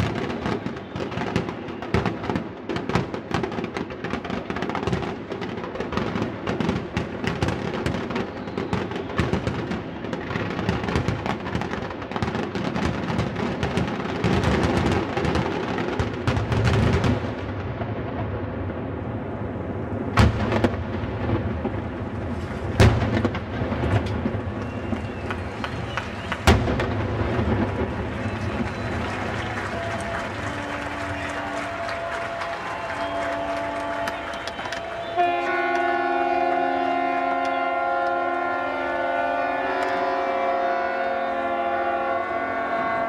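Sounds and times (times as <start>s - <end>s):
smaller firework cracks: 0.0s - 36.2s
applause: 24.5s - 38.3s
ships' horns sounding a chord: 33.0s - 43.0s.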